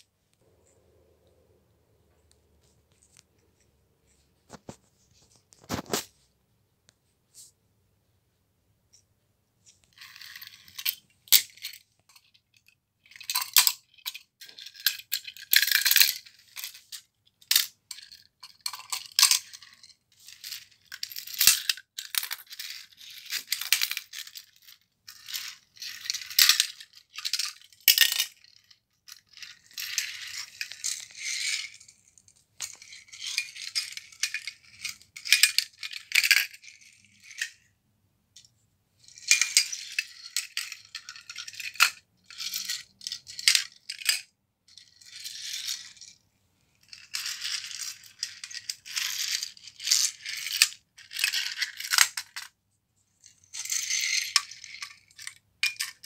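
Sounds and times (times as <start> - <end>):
toy cars clattering: 5.5 - 6.1, 9.6 - 37.7, 38.4 - 52.6, 53.2 - 56.0.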